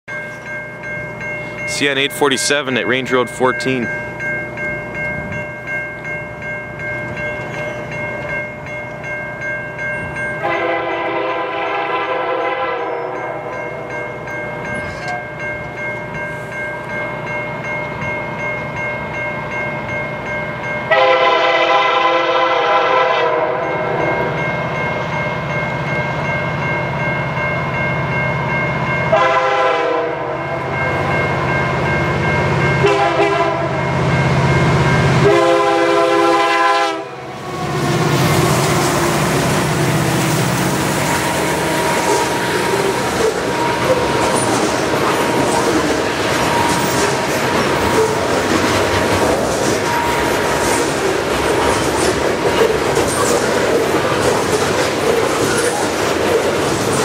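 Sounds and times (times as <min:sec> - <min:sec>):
crossing bell ringing: 0:00.1 - 0:57.0
train air horn blasts: 0:10.4 - 0:13.4, 0:20.9 - 0:23.7, 0:29.1 - 0:30.6, 0:32.8 - 0:33.8, 0:35.2 - 0:38.9, 0:41.0 - 0:44.5.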